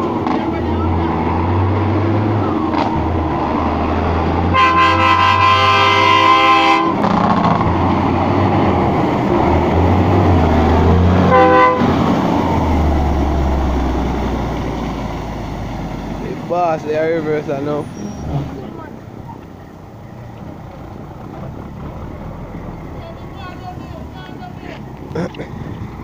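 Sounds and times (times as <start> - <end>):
diesel truck engine passing: 0.0 - 26.0
truck air horn: 4.5 - 7.1, 11.2 - 12.0.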